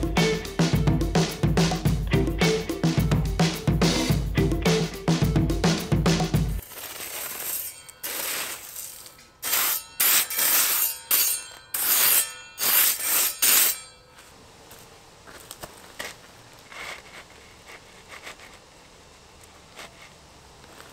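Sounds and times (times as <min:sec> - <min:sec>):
gravel scraped with hand tool: 0:06.6 - 0:13.8, 0:15.7 - 0:18.6.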